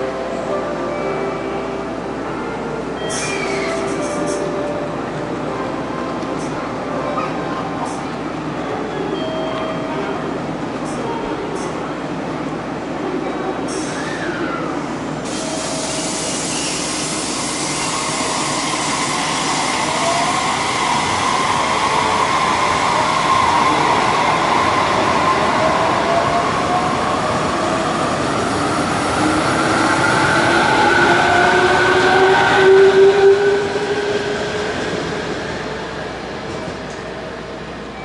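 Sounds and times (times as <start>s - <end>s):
electric train running on rails: 0.0s - 38.0s.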